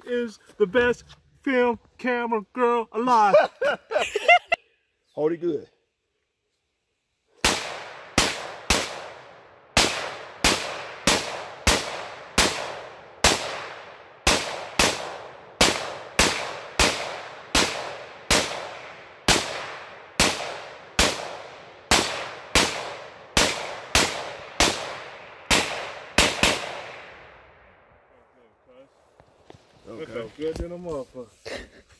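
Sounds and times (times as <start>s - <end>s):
rifle shots echoing: 7.4s - 27.9s.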